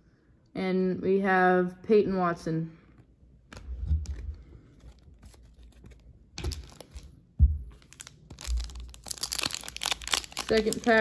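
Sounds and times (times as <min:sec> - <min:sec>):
foil wrapper crinkling: 0:04.9 - 0:11.0.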